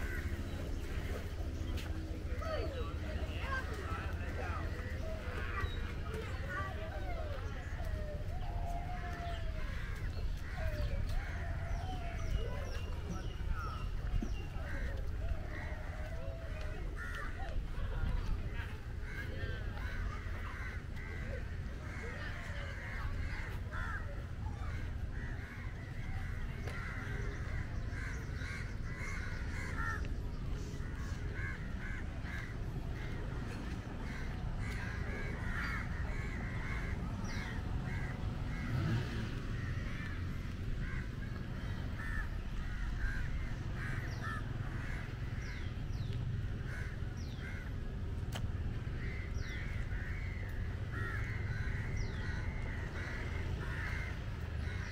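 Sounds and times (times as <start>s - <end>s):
birds chattering: 0.0s - 54.9s.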